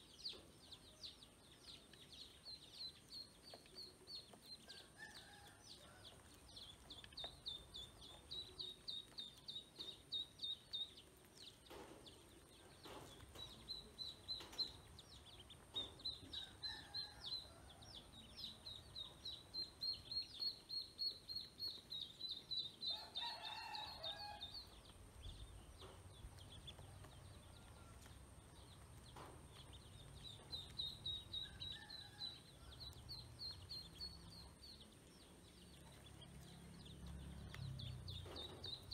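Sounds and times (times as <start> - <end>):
ducklings peeping: 6.2 - 23.7, 24.4 - 38.9.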